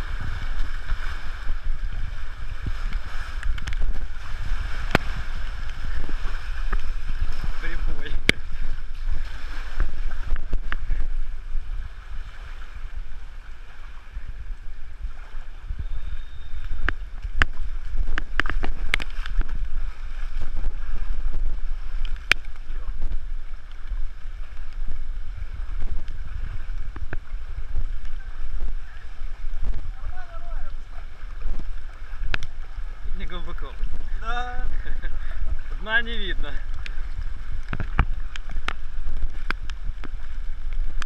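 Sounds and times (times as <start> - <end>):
wind rumble on microphone: 0.0 - 41.0
sharp splash clicks: 2.7 - 4.0, 4.7 - 5.8, 16.7 - 19.7, 21.9 - 22.7, 31.9 - 32.6, 36.7 - 41.0.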